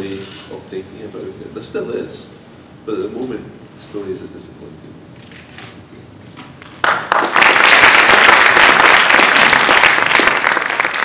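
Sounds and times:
audience applauding: 0:06.8 - 0:11.0.

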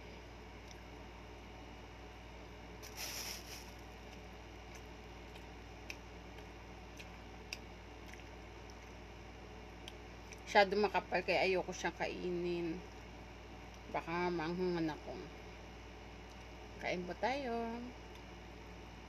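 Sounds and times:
steady low hum: 0:00.0 - 0:19.0
soft rustle: 0:02.8 - 0:03.8
chewing and mouth sounds: 0:04.0 - 0:09.1.

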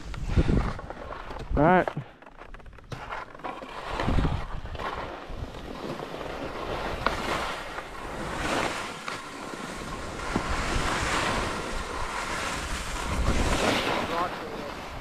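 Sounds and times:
wind rumbling on microphone: 0:00.0 - 0:01.6, 0:03.8 - 0:15.0
skis scraping across snow: 0:00.0 - 0:15.0.

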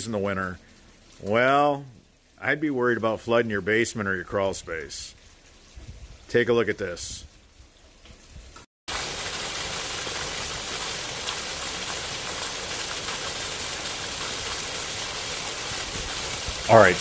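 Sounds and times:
water gushing from downspout: 0:00.0 - 0:06.4, 0:07.9 - 0:17.0
water splashing on ground: 0:07.4 - 0:17.0.

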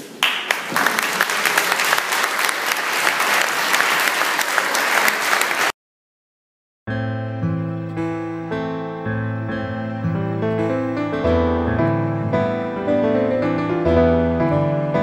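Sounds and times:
crowd clapping: 0:00.0 - 0:05.8.

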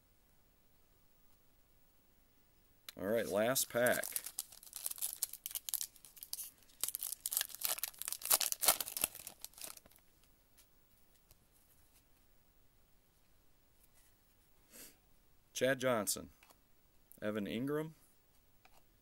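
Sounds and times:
foil wrapper crinkling: 0:03.3 - 0:10.0.

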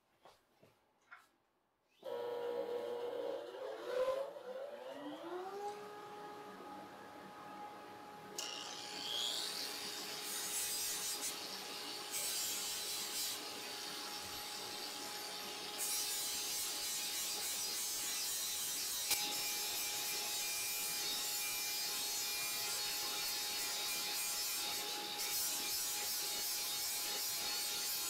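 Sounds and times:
angle grinder sanding wood: 0:08.4 - 0:28.0.

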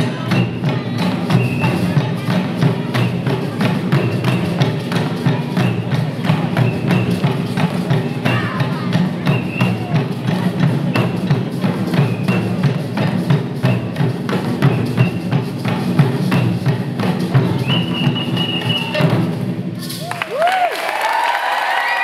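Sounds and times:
fast drumming: 0:00.0 - 0:20.6
audience cheering: 0:20.0 - 0:22.0.

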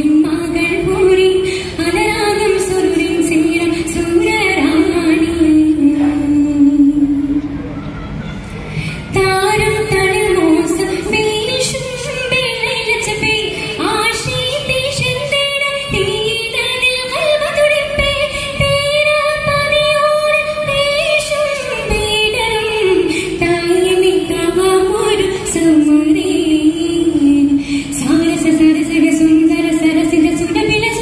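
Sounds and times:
girl singing into microphone: 0:00.0 - 0:31.0.

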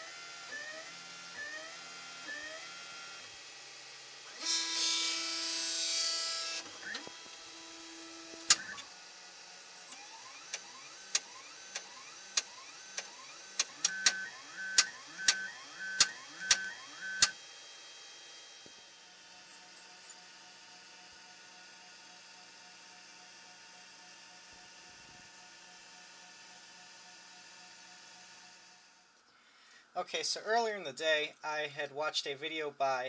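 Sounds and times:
stepper motors whining: 0:04.3 - 0:17.4, 0:18.7 - 0:20.6
sharp clicks: 0:16.0 - 0:17.3
faint steady hum: 0:28.7 - 0:32.8.

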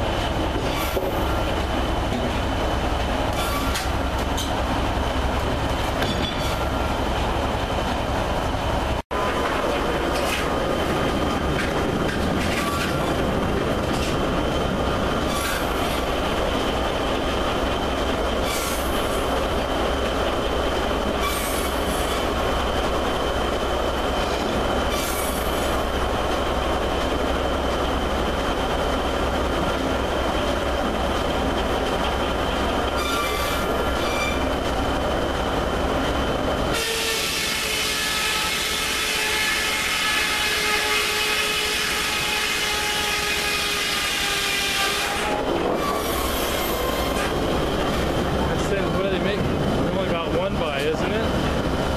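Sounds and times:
log carriage travelling on track: 0:00.0 - 0:38.4, 0:40.1 - 0:51.9
short high squeals: 0:33.0 - 0:34.5.

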